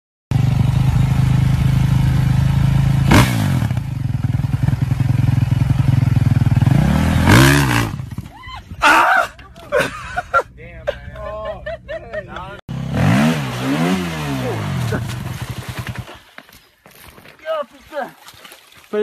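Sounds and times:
dirt bike engine revving: 0:00.3 - 0:08.3, 0:12.7 - 0:16.2.

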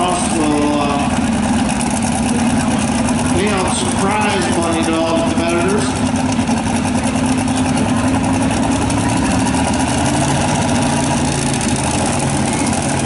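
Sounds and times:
supercharged truck engine idling: 0:00.0 - 0:13.0.

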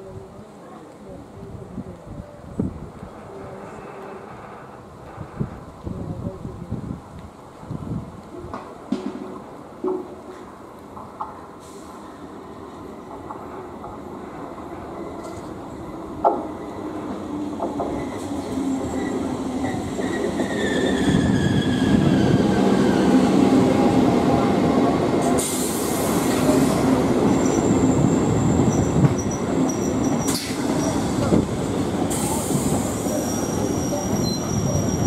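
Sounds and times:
train rumbling on track: 0:00.0 - 0:35.0
high-pitched squeals: 0:18.9 - 0:23.3.

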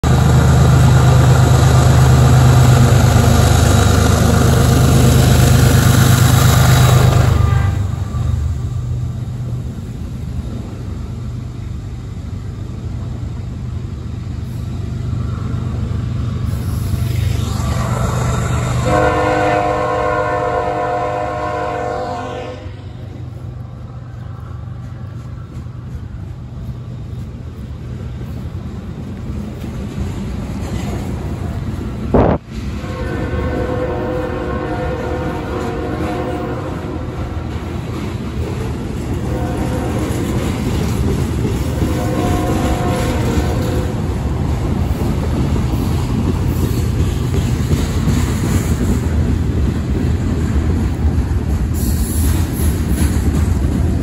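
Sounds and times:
locomotive engine low hum: 0:00.0 - 0:48.1
freight cars rumbling past: 0:00.0 - 0:54.0
locomotive air horn: 0:07.2 - 0:08.6, 0:18.2 - 0:22.9, 0:32.2 - 0:37.6, 0:39.2 - 0:40.6, 0:41.7 - 0:44.0.

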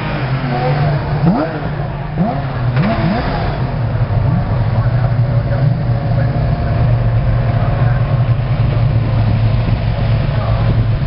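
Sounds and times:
race car engines droning: 0:00.0 - 0:11.0.

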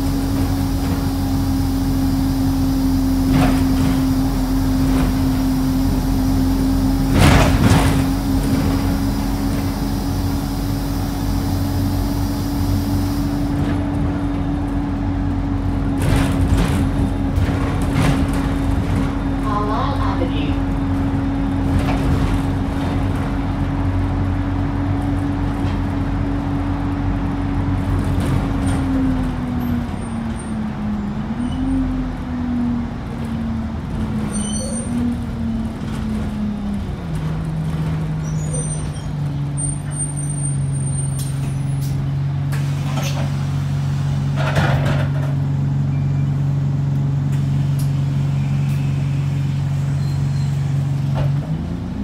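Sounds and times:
bus drivetrain droning: 0:00.0 - 0:52.0
road and cabin rattle: 0:00.0 - 0:52.0
hisses: 0:08.0 - 0:13.5.

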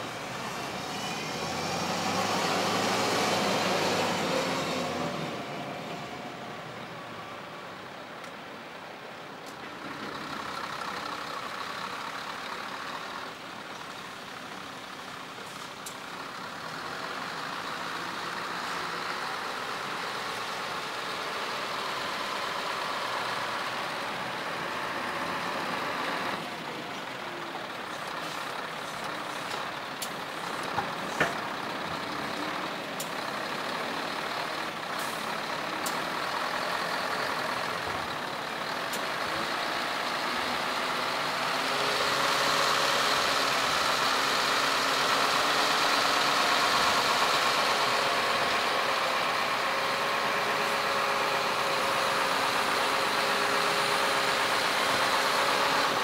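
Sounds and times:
truck engine running: 0:09.8 - 0:56.0.

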